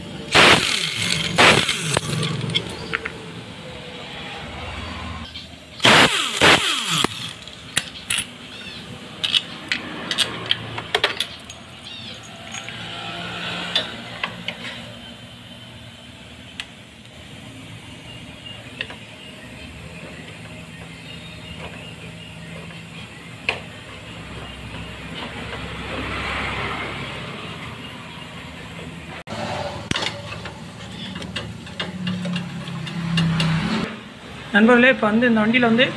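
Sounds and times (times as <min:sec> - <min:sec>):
impact wrench whine: 0:00.1 - 0:03.1, 0:05.8 - 0:08.5
tool handling sounds: 0:00.3 - 0:03.2, 0:05.8 - 0:08.4, 0:09.2 - 0:12.8
sharp metallic clicks and clinks: 0:05.8 - 0:08.4, 0:09.2 - 0:12.9.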